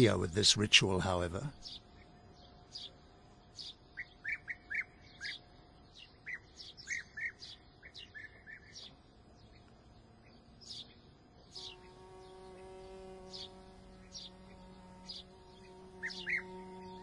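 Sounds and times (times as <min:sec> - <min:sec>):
thin high bird chirps: 0:01.5 - 0:17.0
birds rolling calls: 0:06.2 - 0:17.0.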